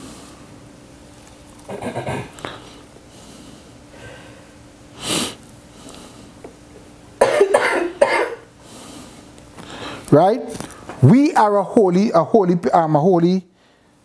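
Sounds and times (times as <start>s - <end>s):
man coughing: 1.7s - 2.4s, 7.2s - 8.5s.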